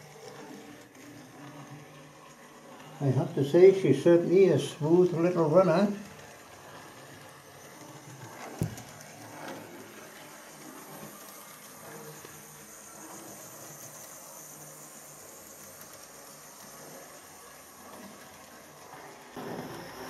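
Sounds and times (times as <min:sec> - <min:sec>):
model train running on track: 0:00.0 - 0:20.0.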